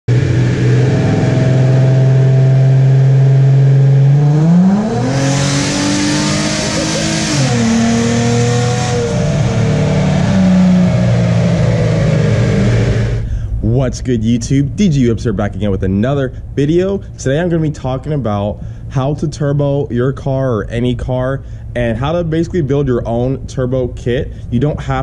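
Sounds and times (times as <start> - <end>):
car engine revving: 0.1 - 19.0.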